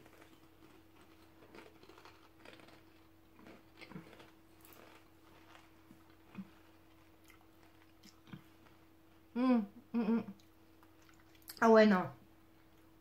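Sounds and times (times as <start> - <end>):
potato chips being chewed: 0.0 - 8.8, 10.4 - 11.6
low steady hum: 0.0 - 13.0.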